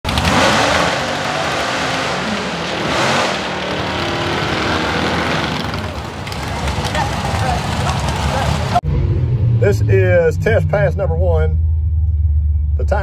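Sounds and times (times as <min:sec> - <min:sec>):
car engine revving hard: 0:00.1 - 0:06.2
tyres spinning on track: 0:00.1 - 0:08.8.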